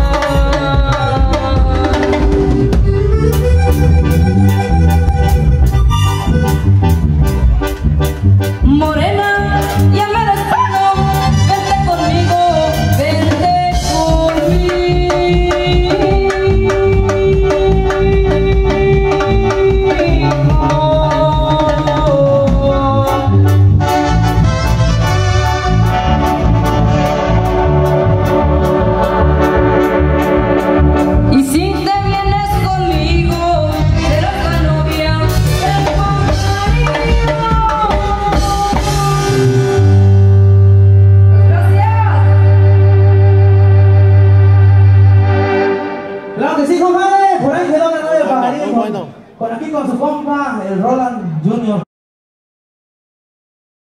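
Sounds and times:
drum kit steady beat: 0:00.0 - 0:41.0
electronic keyboard melody: 0:00.0 - 0:49.4.

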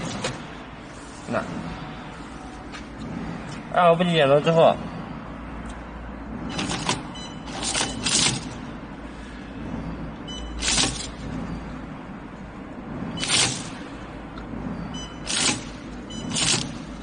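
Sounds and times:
low machine hum: 0:00.0 - 0:17.0
hissing rustling machine bursts: 0:10.6 - 0:11.2, 0:15.2 - 0:16.9.

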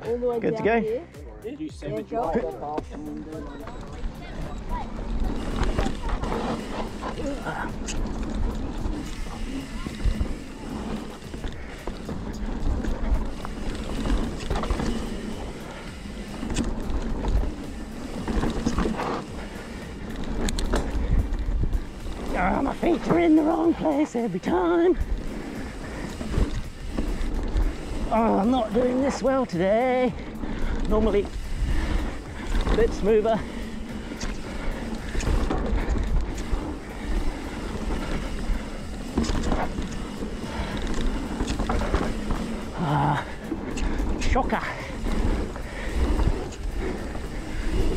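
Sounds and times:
bike clicks and rattles: 0:02.0 - 0:47.9
tyres rumbling over ground: 0:02.0 - 0:47.9
wind buffeting microphone: 0:03.4 - 0:23.8, 0:30.0 - 0:47.9
wind rushing over microphone: 0:30.3 - 0:47.9.

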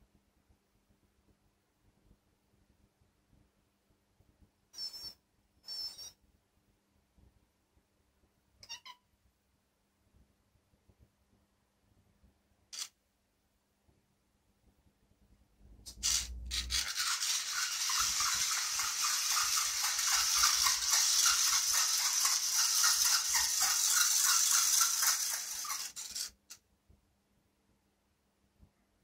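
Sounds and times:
toy motor whirring rattle: 0:05.7 - 0:06.1, 0:15.9 - 0:26.6.

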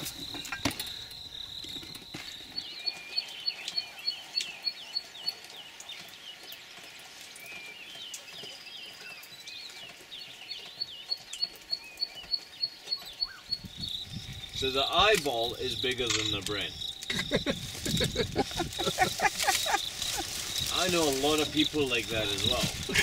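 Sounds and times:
cricket-like chirp pulsing: 0:00.0 - 0:05.1, 0:12.0 - 0:23.0
insects chirping: 0:00.0 - 0:08.1, 0:09.0 - 0:23.0.

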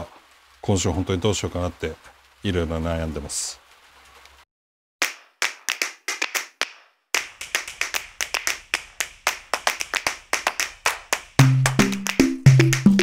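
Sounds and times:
percussive music with clap-like strikes: 0:05.0 - 0:13.0.

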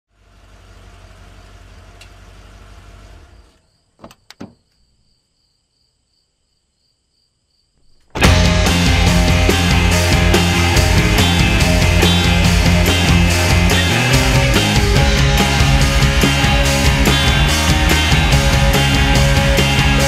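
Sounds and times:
loud rock music: 0:08.2 - 0:20.0.

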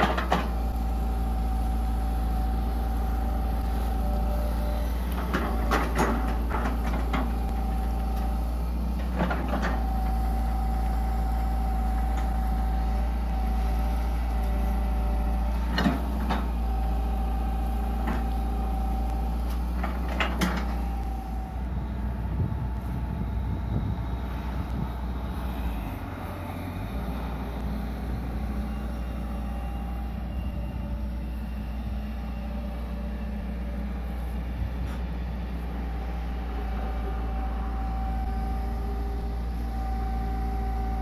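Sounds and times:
excavator bucket clanks: 0:00.0 - 0:00.6
excavator diesel engine running: 0:00.0 - 0:41.0.

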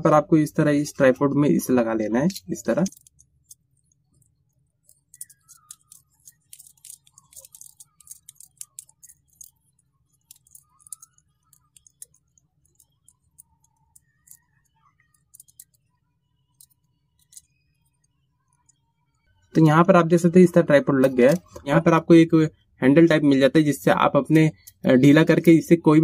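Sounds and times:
small plastic clicks and scrapes: 0:02.8 - 0:19.3.

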